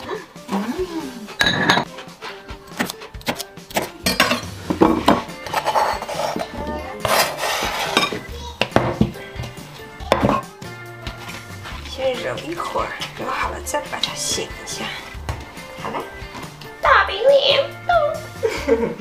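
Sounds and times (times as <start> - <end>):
faint background music: 0.0 - 19.0
knife chopping on cutting board: 2.8 - 3.9.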